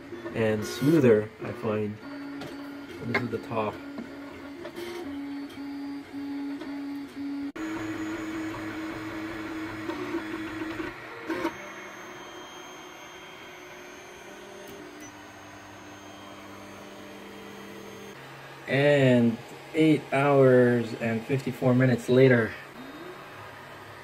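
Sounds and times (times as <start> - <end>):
stepper motors whining: 0.3 - 18.2.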